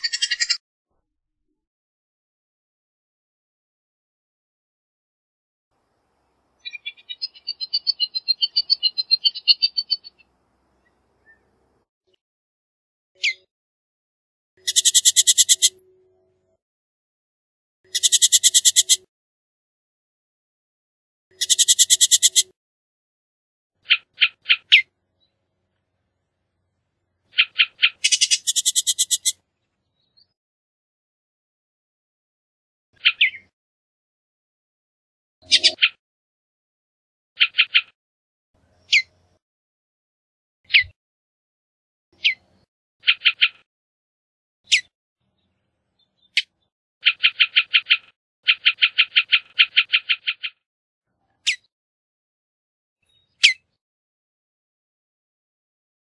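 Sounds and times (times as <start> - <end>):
bird dry chatters: 0.0 - 0.6, 14.6 - 15.8, 17.9 - 19.1, 21.3 - 22.5, 27.3 - 29.4.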